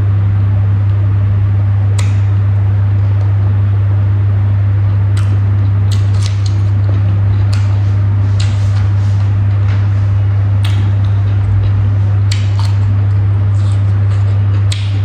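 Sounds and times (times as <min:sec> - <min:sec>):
loud low hum: 0:00.0 - 0:15.0
mouth smacks while chewing: 0:04.8 - 0:15.0.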